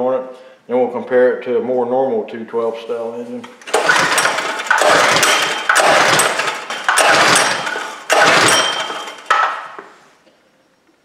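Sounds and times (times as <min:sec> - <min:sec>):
engine pull-starter rasping whirr: 0:03.6 - 0:09.9.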